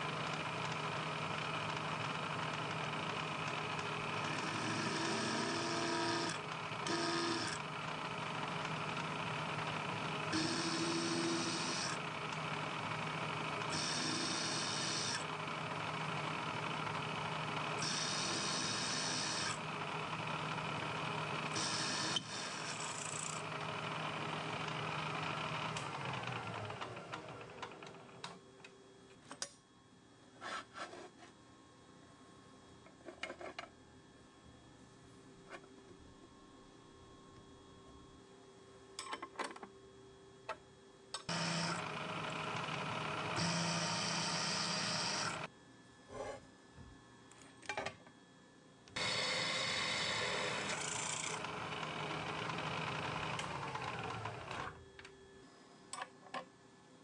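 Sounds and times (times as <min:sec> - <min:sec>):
milling machine spindle running: 0:03.4 - 0:07.6, 0:10.0 - 0:12.5, 0:13.7 - 0:15.2, 0:17.8 - 0:19.6, 0:21.4 - 0:23.3, 0:41.3 - 0:45.5, 0:49.0 - 0:54.8
spindle motor winding down: 0:04.2 - 0:07.6, 0:10.3 - 0:12.0, 0:13.7 - 0:15.3, 0:17.8 - 0:19.6, 0:21.5 - 0:23.4, 0:41.3 - 0:45.5, 0:49.0 - 0:54.8
drill scraping through steel: 0:17.8 - 0:19.6, 0:43.4 - 0:45.4.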